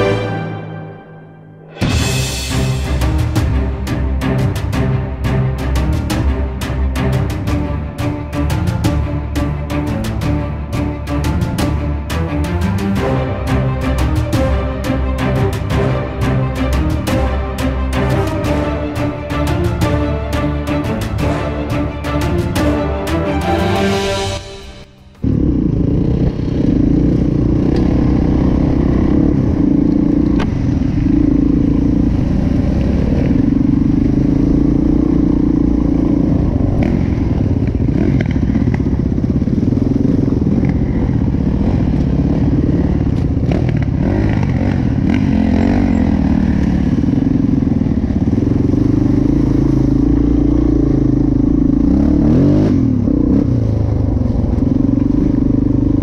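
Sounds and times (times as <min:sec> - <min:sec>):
dirt bike engine revving: 0:25.2 - 0:56.0.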